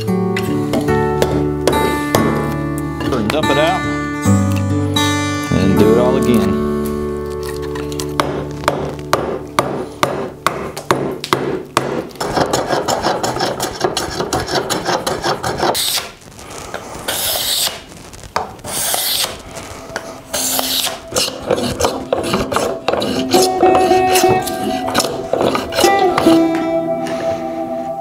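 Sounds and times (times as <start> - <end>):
chisel scraping wood: 12.2 - 16.1, 17.1 - 17.8, 18.6 - 19.4, 20.0 - 26.4
edge tool shaving wood: 12.2 - 16.2, 17.1 - 17.8, 18.6 - 26.4.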